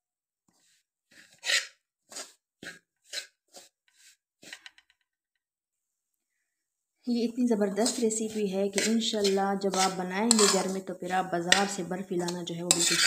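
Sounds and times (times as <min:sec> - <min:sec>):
metal spatula scraping steel pot: 0:01.1 - 0:04.7, 0:07.7 - 0:13.0.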